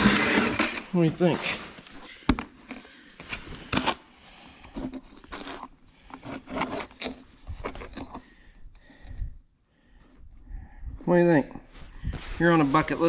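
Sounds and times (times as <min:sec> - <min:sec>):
camera handling rubs and scrapes: 0:01.5 - 0:08.4.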